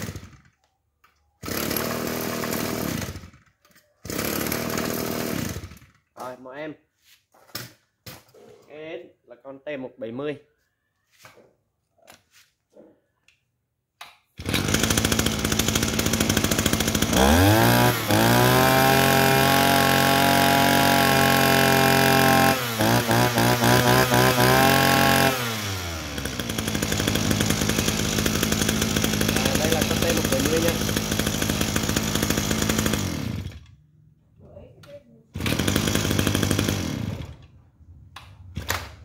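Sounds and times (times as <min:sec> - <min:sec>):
brushcutter engine revving: 0:00.0 - 0:00.5, 0:01.4 - 0:06.0, 0:14.4 - 0:33.7, 0:35.3 - 0:37.4.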